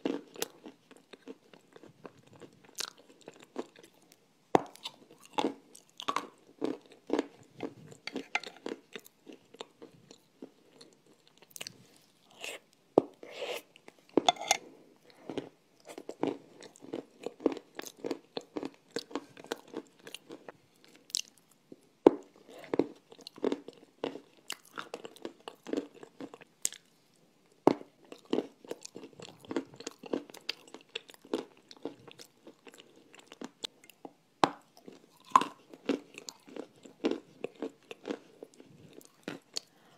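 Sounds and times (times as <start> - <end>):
person chewing crunchy clay: 0.0 - 26.9, 27.7 - 39.9.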